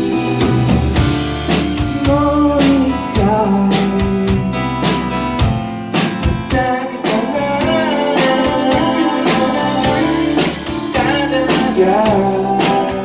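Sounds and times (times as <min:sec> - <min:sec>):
strummed guitars: 0:00.0 - 0:13.0
man singing: 0:01.8 - 0:05.1, 0:06.3 - 0:13.0.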